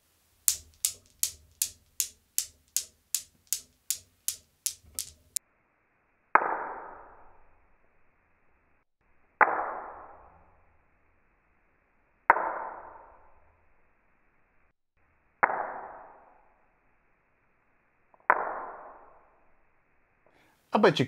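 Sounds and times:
newton's cradle balls clacking: 0.3 - 5.4.

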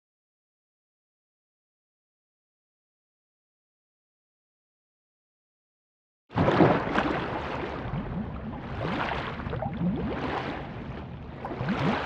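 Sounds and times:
underwater bubbling rush: 6.4 - 12.0.

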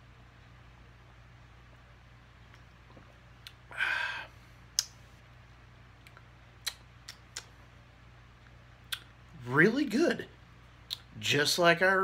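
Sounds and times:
person exhaling breathily: 3.7 - 4.5.

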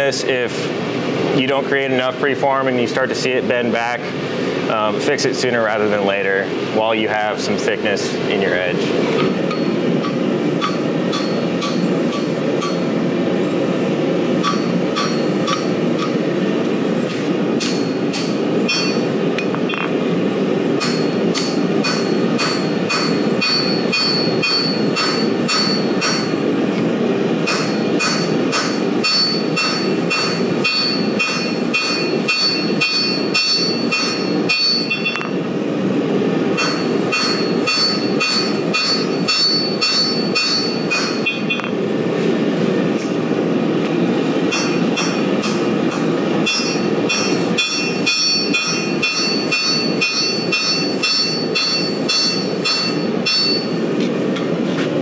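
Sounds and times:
hammer ringing on anvil: 9.5 - 12.9, 14.4 - 15.8, 17.6 - 19.1, 20.8 - 26.3, 27.5 - 35.4, 36.6 - 41.7, 44.5 - 45.6, 46.4 - 53.8.

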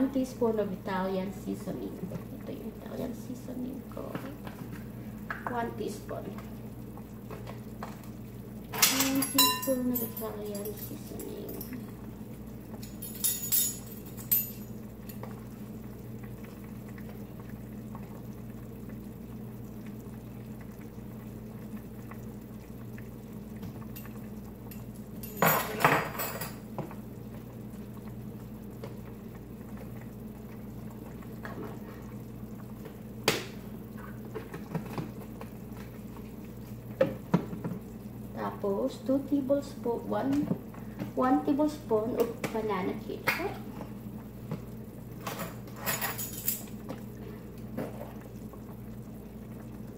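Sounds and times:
steady low hum: 0.0 - 49.9
kitchen utensils clinking: 8.7 - 11.9, 12.8 - 14.7, 25.2 - 26.6, 45.2 - 46.8.

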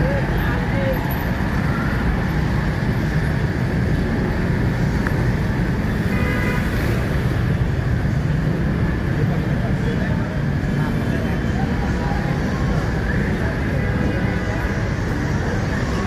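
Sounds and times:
motorbikes and auto-rickshaws rumbling: 0.0 - 16.0.

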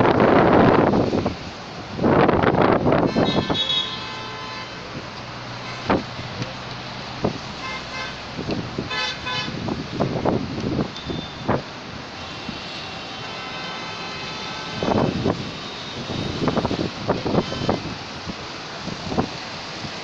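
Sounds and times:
wind buffeting microphone: 0.0 - 4.0, 4.8 - 13.6, 14.2 - 20.0
vehicle horn: 3.0 - 4.9, 5.6 - 6.0, 7.6 - 8.2, 8.9 - 9.6, 11.0 - 11.6, 12.2 - 17.9.

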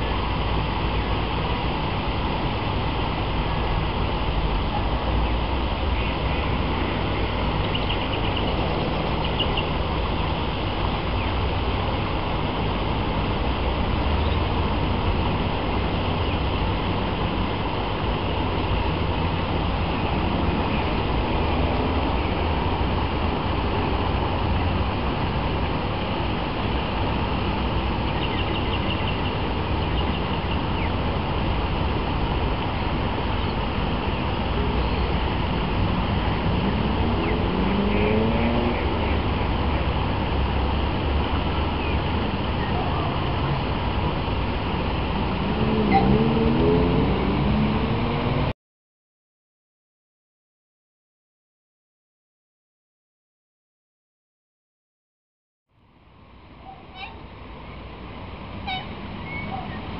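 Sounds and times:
distant road traffic hum: 0.0 - 48.5, 55.7 - 59.9.

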